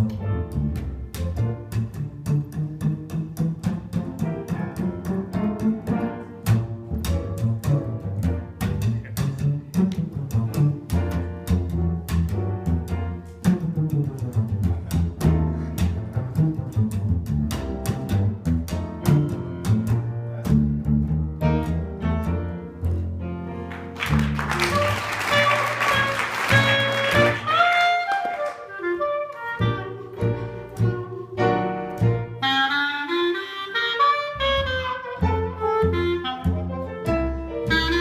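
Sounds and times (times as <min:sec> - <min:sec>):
plucked double bass: 0:00.0 - 0:38.0
clarinet high notes: 0:24.4 - 0:31.6, 0:32.3 - 0:38.0.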